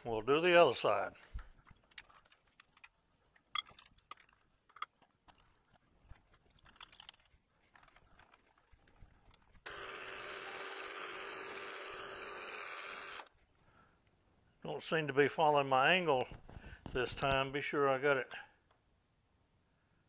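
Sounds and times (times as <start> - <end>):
milling machine running: 9.7 - 13.3.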